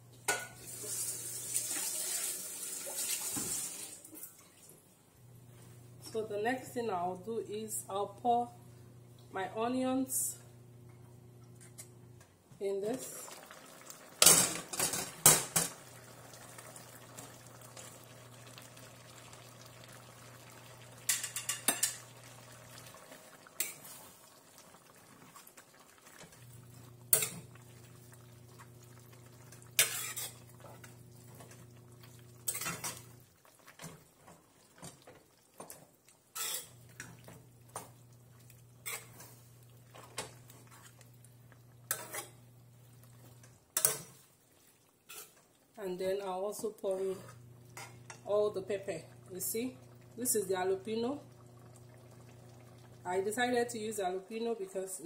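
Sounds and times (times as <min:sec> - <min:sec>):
spoon stirring food in a pan: 0:13.3 - 0:48.3.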